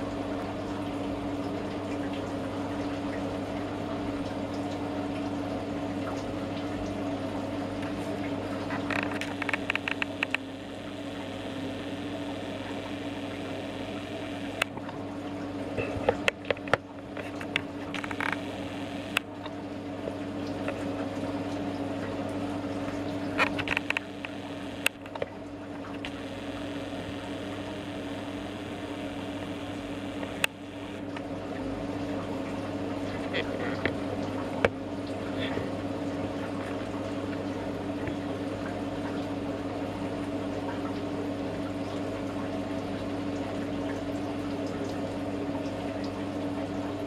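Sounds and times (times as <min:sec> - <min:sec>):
steady low hum: 0:00.0 - 0:47.0
rapid dripping or bubbling ticks: 0:00.1 - 0:35.3
sharp clicks: 0:08.9 - 0:14.7, 0:17.4 - 0:19.3, 0:23.4 - 0:25.3, 0:26.0 - 0:31.0.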